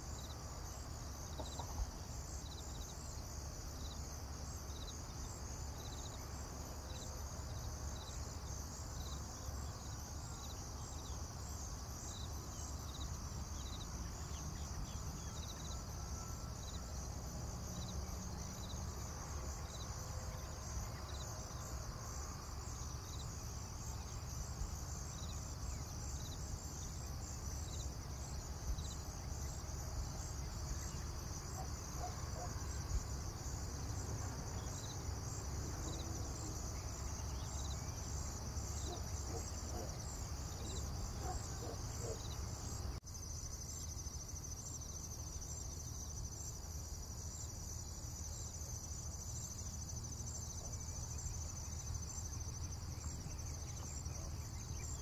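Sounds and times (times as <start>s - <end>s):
insects chirring: 0.0s - 55.0s.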